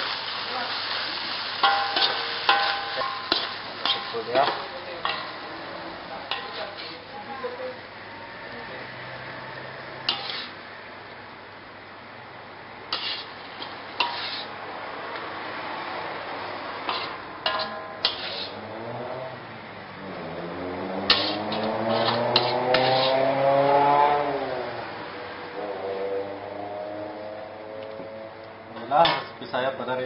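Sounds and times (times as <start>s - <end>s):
metal ladle clinking against wok: 1.6s - 5.4s, 6.3s - 6.9s, 16.9s - 18.6s.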